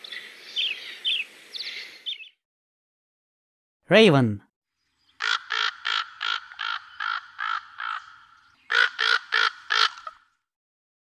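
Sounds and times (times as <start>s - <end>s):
raven cawing: 5.2s - 10.4s.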